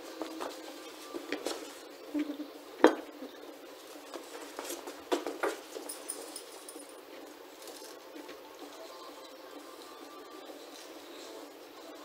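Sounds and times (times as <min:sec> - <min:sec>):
metal clinks and knocks: 0:04.0 - 0:07.8.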